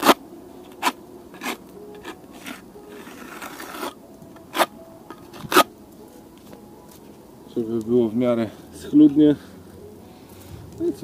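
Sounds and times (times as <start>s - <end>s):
steel trowel scraping mortar: 0.0s - 4.7s, 5.3s - 5.7s.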